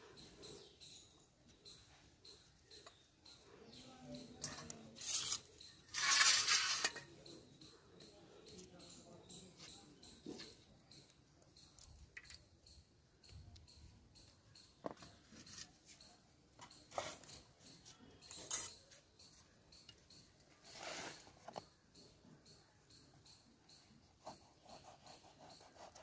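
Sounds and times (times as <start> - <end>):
scratchy rasp: 5.0 - 7.0, 24.2 - 26.0.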